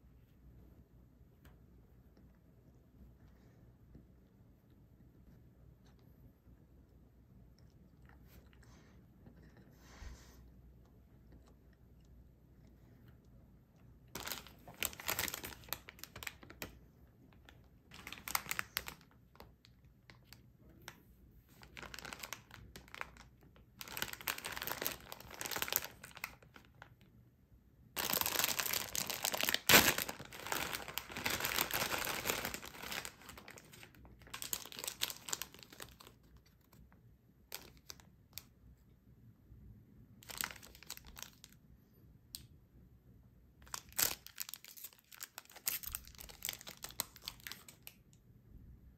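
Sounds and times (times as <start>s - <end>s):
plastic wrappers crinkling: 14.1s - 19.5s, 21.6s - 27.0s, 28.0s - 36.8s, 37.5s - 38.1s, 40.2s - 41.6s, 43.6s - 48.0s
bag tearing open with snap: 28.6s - 32.5s.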